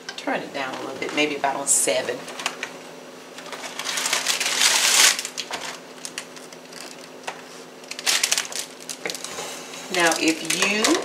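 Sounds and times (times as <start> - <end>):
packaging rustling and crinkling: 3.4 - 11.0.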